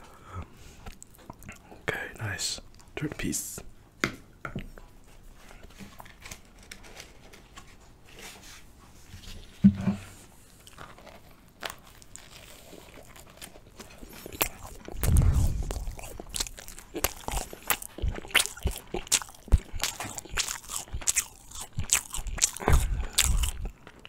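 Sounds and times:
chewing with crunches: 0.7 - 1.9, 10.4 - 24.0
low rumble: 14.8 - 17.7
short low thump: 15.0 - 16.9.

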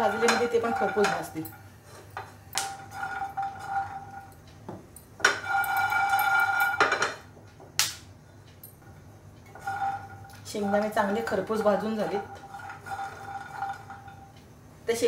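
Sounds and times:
spatula scraping a pan: 0.0 - 4.4, 5.2 - 7.1, 9.5 - 14.3
steady ringing tone: 2.8 - 7.2, 8.6 - 14.4.

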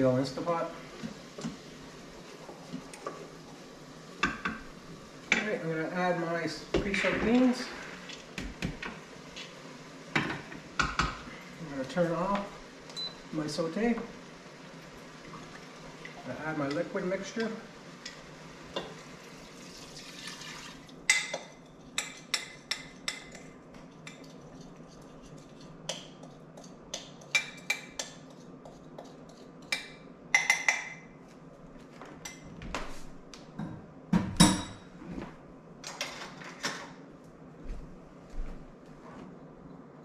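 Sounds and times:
liquid pouring into a pot: 18.8 - 21.0.

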